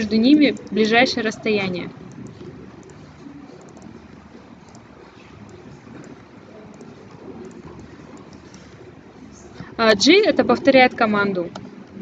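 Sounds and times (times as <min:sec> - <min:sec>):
background hiss and hum: 0:00.0 - 0:12.0
computer mouse clicks: 0:00.4 - 0:00.9, 0:02.0 - 0:08.8.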